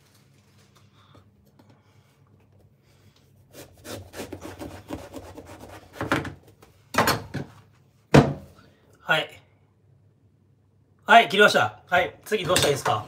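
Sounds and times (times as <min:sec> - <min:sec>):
knife sawing through fruit rind: 0:03.5 - 0:06.0.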